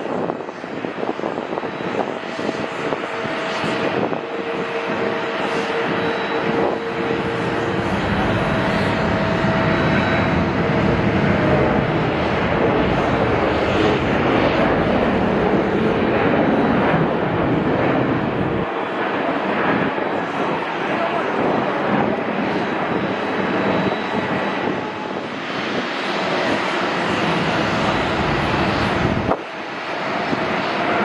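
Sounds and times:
jet engines whining: 0.0 - 31.0.

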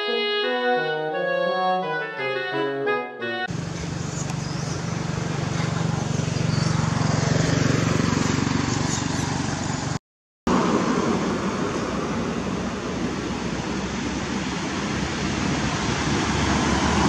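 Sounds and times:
vehicle engine humming: 3.4 - 17.0
outdoor noise: 3.5 - 17.0.

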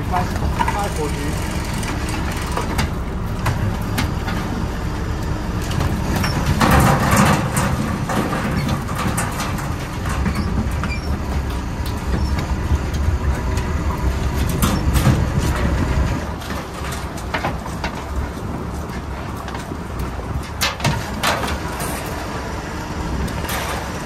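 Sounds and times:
boat engine running: 0.0 - 17.1.

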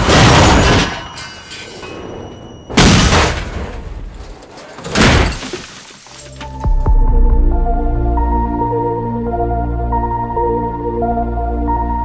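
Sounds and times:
car crash smash: 0.0 - 2.0, 2.7 - 6.2
glass shattering: 0.0 - 6.6
soundtrack music: 6.3 - 12.0.

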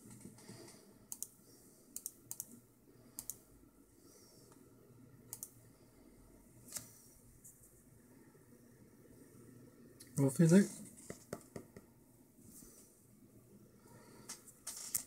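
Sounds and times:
keyboard or mouse clicks: 1.1 - 1.3, 2.0 - 2.6, 3.2 - 3.4, 5.3 - 5.6.

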